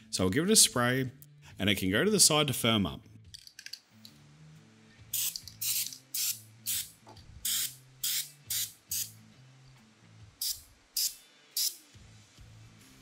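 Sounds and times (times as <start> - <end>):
aerosol can spraying: 5.1 - 9.2, 10.4 - 12.0.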